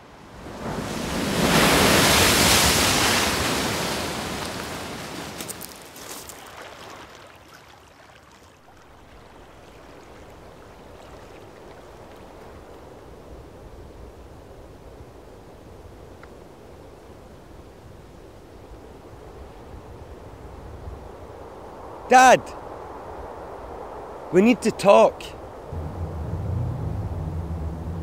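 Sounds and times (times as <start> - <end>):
loud rushing sound: 25.7 - 28.0.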